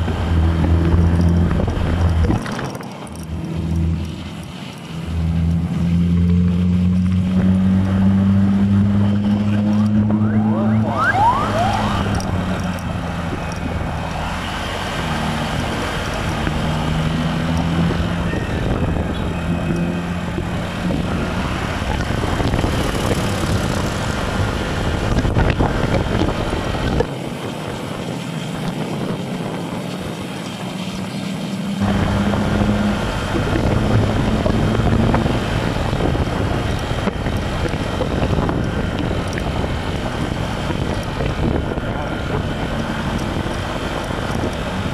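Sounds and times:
motorcycle engine running: 0.0 - 27.0, 31.8 - 44.9
wind noise on microphone: 0.0 - 31.0, 31.6 - 44.9.

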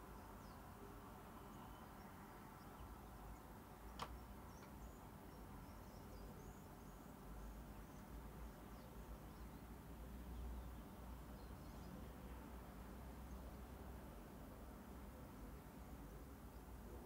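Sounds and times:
faint click: 3.9 - 4.8.

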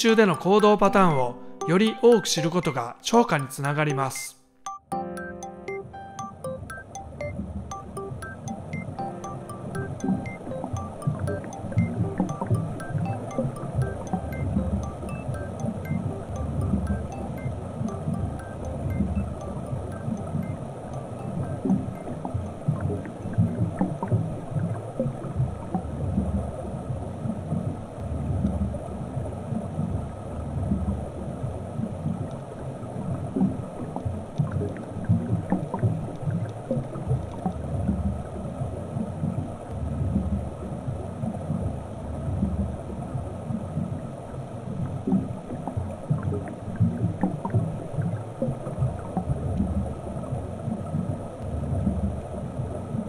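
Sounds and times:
faint ticks: 5.2 - 41.7
underwater rumble of moving water: 21.4 - 53.0.

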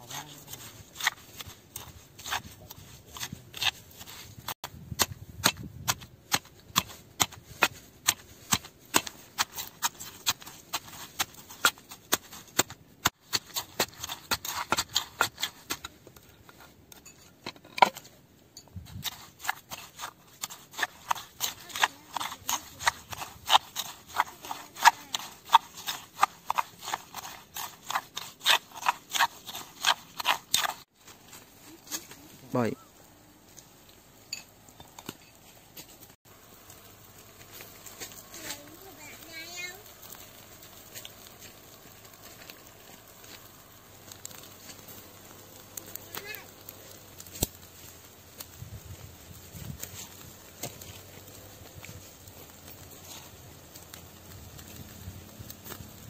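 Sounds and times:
spoon scraping stone: 0.0 - 4.6, 5.9 - 18.1, 18.7 - 31.4
pestle pounding in stone mortar: 4.4 - 15.9, 18.9 - 30.8.

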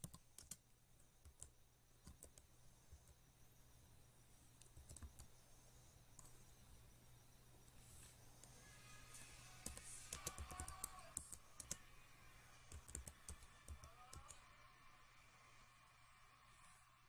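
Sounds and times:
keyboard typing: 0.0 - 3.2, 4.6 - 5.4, 9.6 - 11.9, 12.7 - 14.4.

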